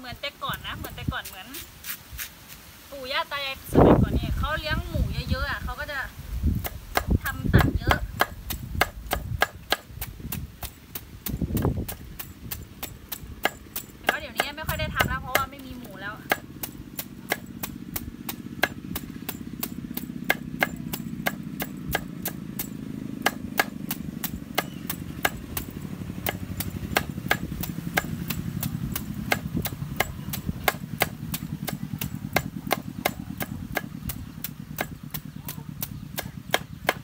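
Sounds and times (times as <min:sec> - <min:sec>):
knife chopping on cutting board: 0:16.2 - 0:35.3.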